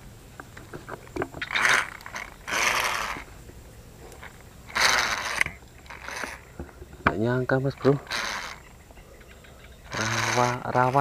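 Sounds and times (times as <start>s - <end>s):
fishing reel whirring: 1.4s - 3.3s, 4.2s - 6.5s, 8.0s - 8.7s, 9.9s - 11.0s.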